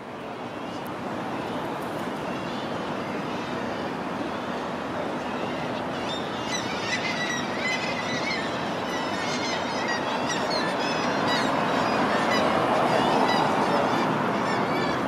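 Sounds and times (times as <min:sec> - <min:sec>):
city traffic: 0:00.0 - 0:15.0
gulls calling: 0:04.4 - 0:15.0.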